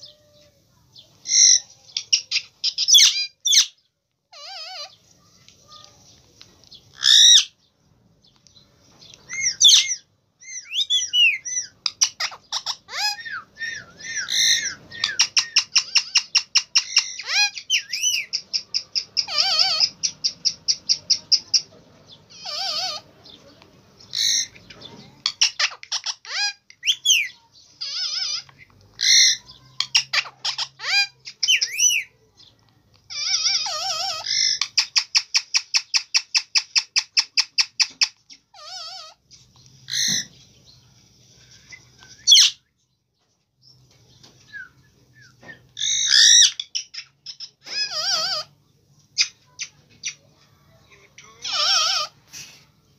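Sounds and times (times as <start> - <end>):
parakeet chattering: 1.3 - 5.8, 6.8 - 7.6, 9.2 - 40.4, 45.8 - 50.3, 51.1 - 52.3.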